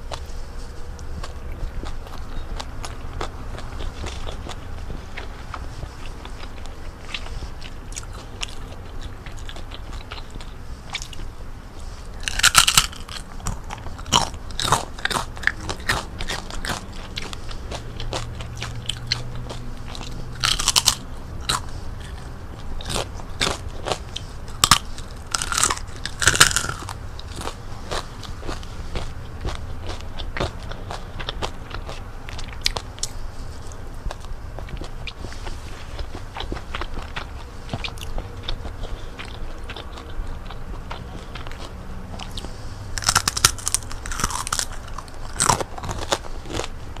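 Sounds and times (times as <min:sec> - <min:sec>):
chewing: 0:00.0 - 0:47.0
crunching bites into crispy food: 0:12.1 - 0:33.2, 0:35.9 - 0:46.8.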